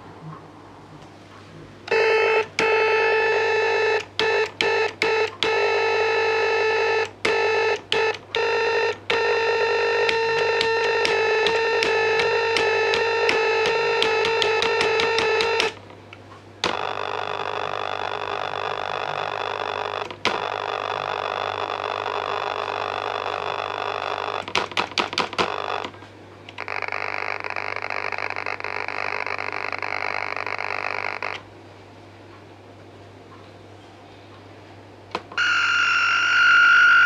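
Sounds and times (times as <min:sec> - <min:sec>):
buzzy electronic tones: 0:01.9 - 0:15.8, 0:35.4 - 0:37.0.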